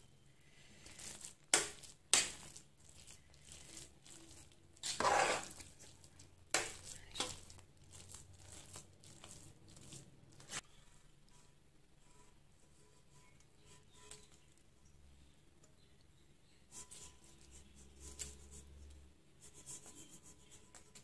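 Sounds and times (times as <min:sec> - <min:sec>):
utensil mashing wet rice: 0:00.8 - 0:11.4.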